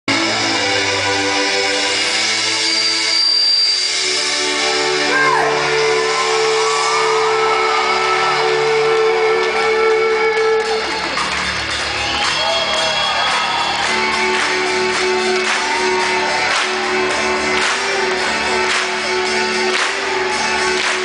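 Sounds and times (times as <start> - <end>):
audience shouting and whooping: 4.8 - 17.2.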